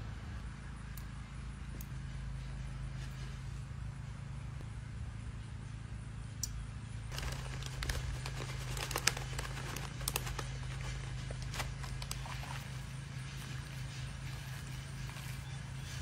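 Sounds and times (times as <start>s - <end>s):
steady low hum: 0.0s - 16.0s
plastic bag crinkling: 7.1s - 13.0s.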